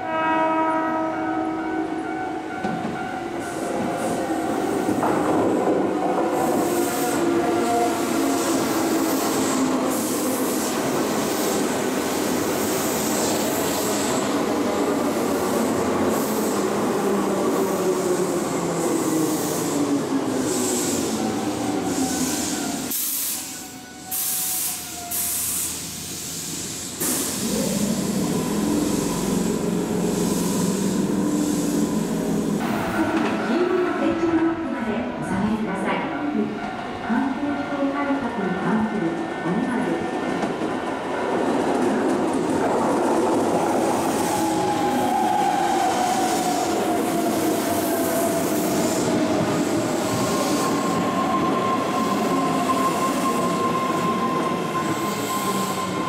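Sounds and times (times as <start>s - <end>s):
train pulling away with motor whine: 0.0s - 32.9s, 38.4s - 56.0s
rushing hiss: 21.9s - 32.6s
electric train braking: 43.5s - 56.0s.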